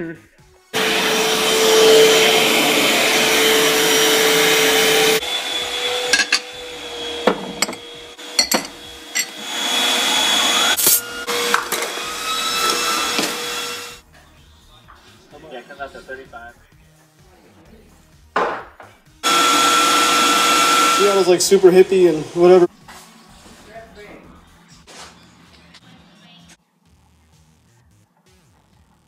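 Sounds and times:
vacuum cleaner motor droning: 0.8s - 14.0s, 19.2s - 22.7s.

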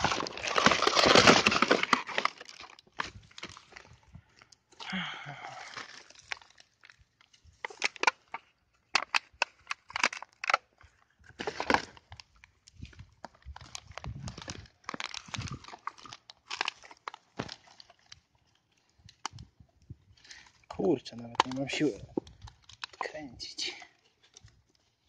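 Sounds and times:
twigs snapping: 0.0s - 3.9s, 5.7s - 8.4s, 11.4s - 19.5s, 20.3s - 23.0s
leaves and twigs crackling underfoot: 0.0s - 4.6s, 5.4s - 8.4s, 9.1s - 25.0s.

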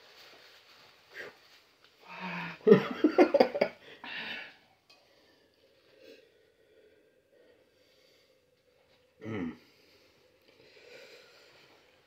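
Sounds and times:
man breathing out: 3.8s - 4.6s, 9.2s - 11.8s
man huffing and groaning: 9.2s - 9.7s.

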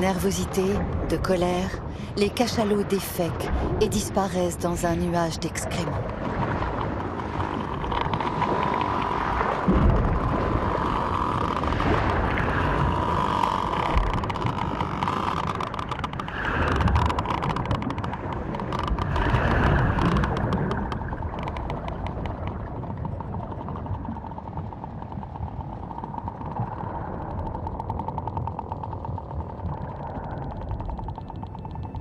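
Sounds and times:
churning water: 0.0s - 32.0s
low underwater thuds: 6.2s - 10.8s
whale click trains: 6.7s - 32.0s.

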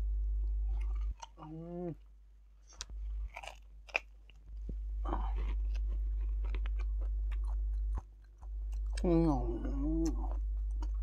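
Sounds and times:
low steady hum: 0.0s - 11.0s
wet open-mouthed chewing: 2.7s - 9.1s, 9.9s - 11.0s.

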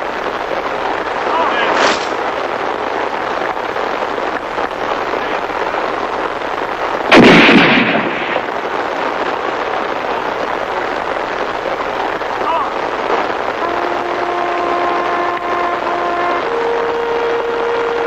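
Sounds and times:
steady hiss: 0.0s - 18.0s
rifle volley: 7.1s - 8.6s.

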